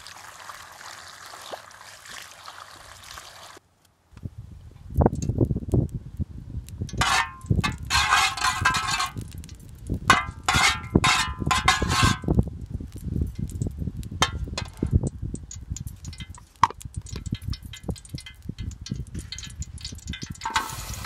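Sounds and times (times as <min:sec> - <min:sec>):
metal spoon scraping metal pan: 0:07.0 - 0:09.2, 0:10.1 - 0:12.3, 0:17.1 - 0:21.0.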